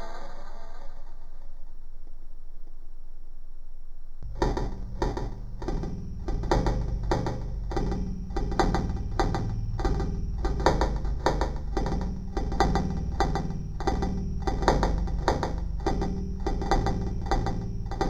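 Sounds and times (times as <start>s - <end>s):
electronic music with percussive beat: 4.2s - 18.0s.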